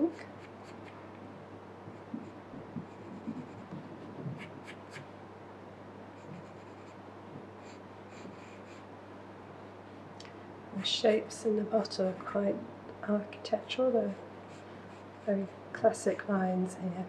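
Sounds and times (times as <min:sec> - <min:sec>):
pencil scratching on paper: 0:02.0 - 0:03.7, 0:06.2 - 0:07.0.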